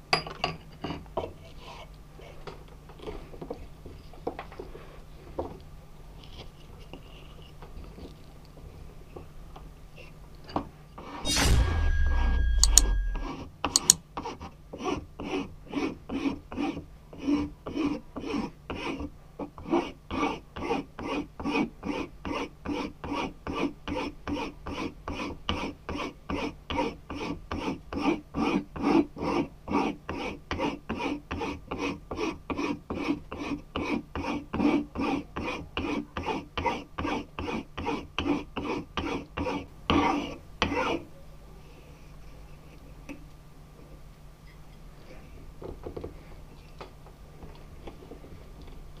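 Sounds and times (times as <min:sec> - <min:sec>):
hand file rasping on wood: 0:14.2 - 0:41.0.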